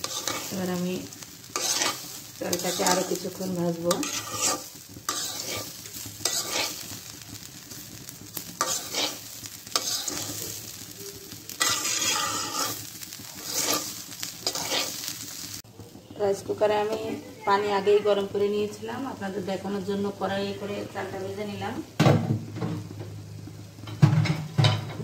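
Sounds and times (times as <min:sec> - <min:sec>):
metal spatula scraping wok: 0:00.0 - 0:15.6
rice sizzling in oil: 0:00.0 - 0:25.0.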